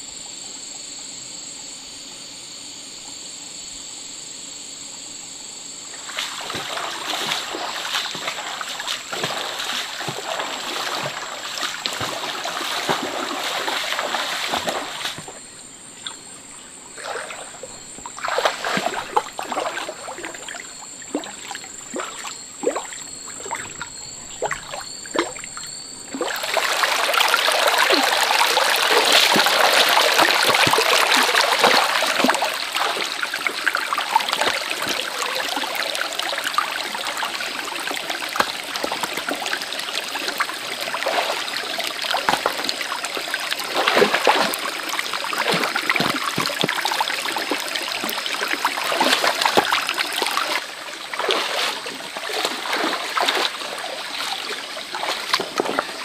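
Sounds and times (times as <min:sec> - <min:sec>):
high-pitched background whine: 0:00.0 - 0:41.8
stream running over rocks: 0:06.0 - 0:56.0
dog splashing through water: 0:06.1 - 0:15.4, 0:18.2 - 0:25.4, 0:26.1 - 0:35.7, 0:40.2 - 0:56.0
stones knocking in water: 0:42.2 - 0:42.7, 0:45.4 - 0:46.8.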